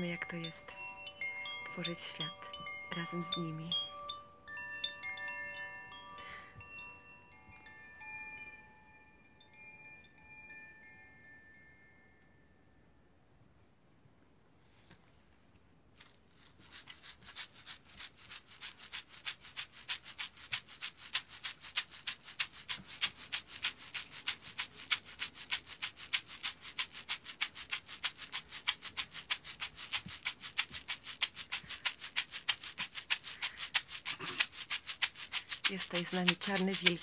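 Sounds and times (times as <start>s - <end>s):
hand rattle shaken: 0.0s - 4.0s, 16.0s - 37.0s.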